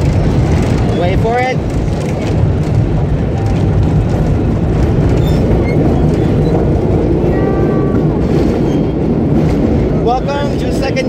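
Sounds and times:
subway wheels rumbling on rail: 0.0 - 11.0
high-pitched wheel squeal: 5.1 - 6.7, 8.6 - 9.0.

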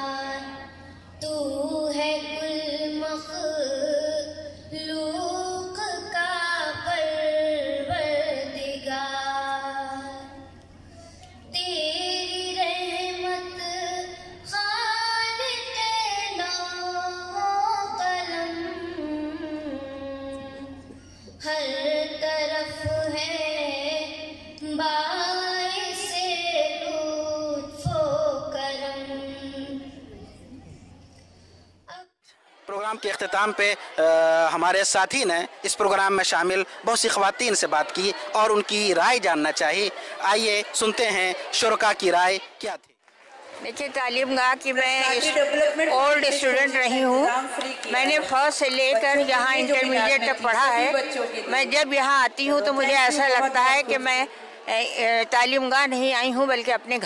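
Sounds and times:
girl singing unaccompanied: 0.0 - 10.6, 11.5 - 30.3.

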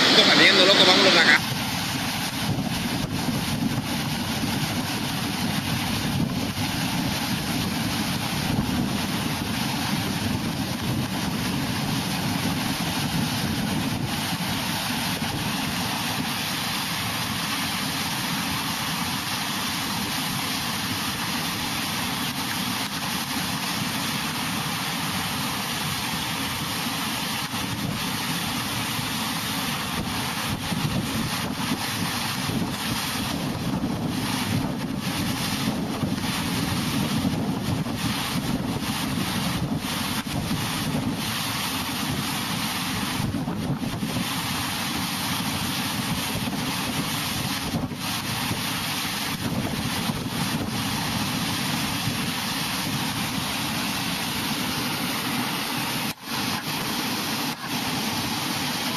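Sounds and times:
wind buffeting microphone: 0.0 - 15.8, 29.9 - 53.6
floodwater rushing: 0.0 - 58.9.

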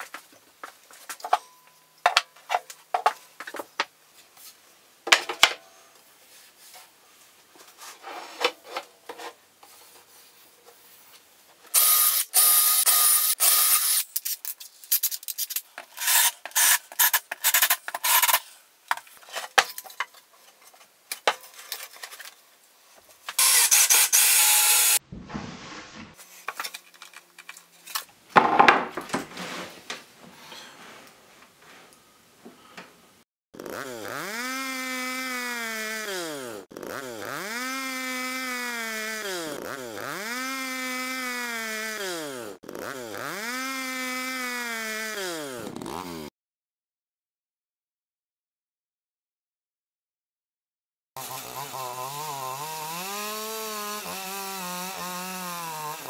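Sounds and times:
cordless drill drilling wood: 11.7 - 14.0, 23.4 - 25.0, 33.7 - 46.2, 51.2 - 56.0
boards knocking on metal: 28.4 - 29.3.

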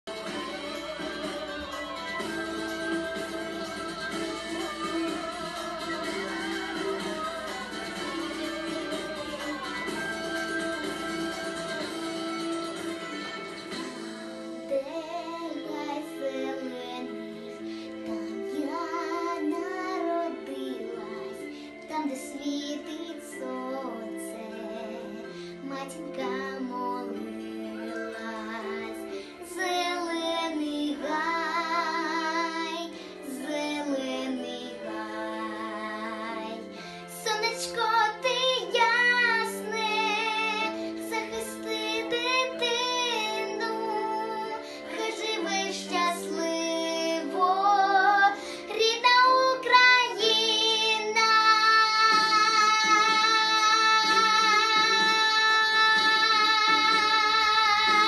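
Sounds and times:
instrumental backing track: 0.0 - 58.0
girl singing pop song: 0.1 - 58.0.

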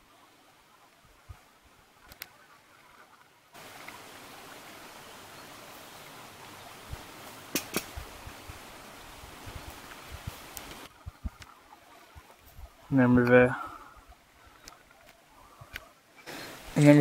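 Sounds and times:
running water rushing: 0.0 - 17.0
sharp clicks: 7.5 - 7.9.

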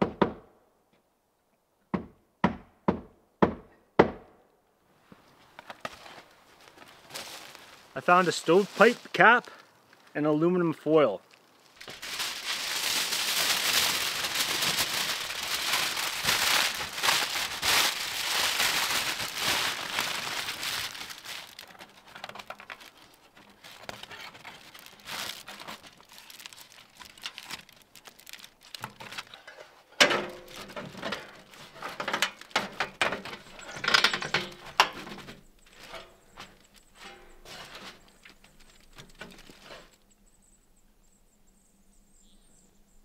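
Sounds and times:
aluminum foil crinkling: 5.6 - 10.1, 11.2 - 40.0.

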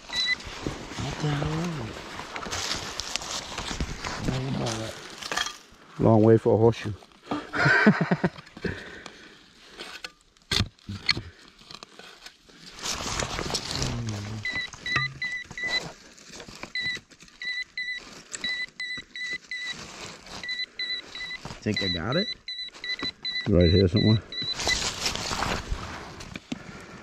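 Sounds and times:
metal detector beeping: 0.0 - 0.5, 14.4 - 15.9, 16.7 - 19.8, 20.4 - 25.0.

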